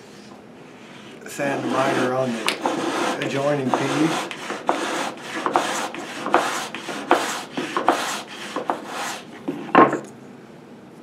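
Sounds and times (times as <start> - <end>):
sandpaper rasping on wood: 1.4 - 9.6.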